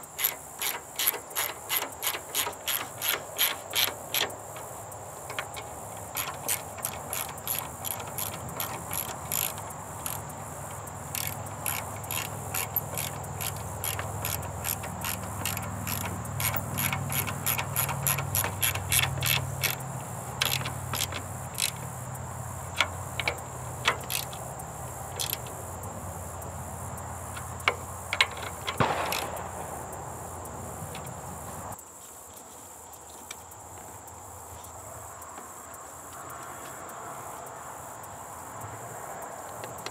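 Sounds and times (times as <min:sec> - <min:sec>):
socket ratchet clicking: 0:00.0 - 0:31.8.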